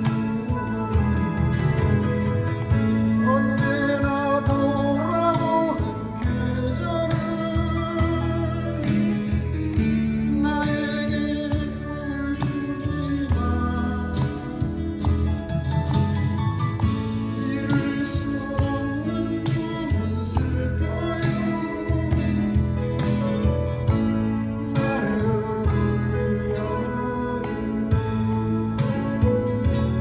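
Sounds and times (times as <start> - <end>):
amplified acoustic guitar: 0.0 - 30.0
man singing into microphone: 3.2 - 9.4, 10.2 - 15.0, 17.2 - 22.8, 24.6 - 30.0.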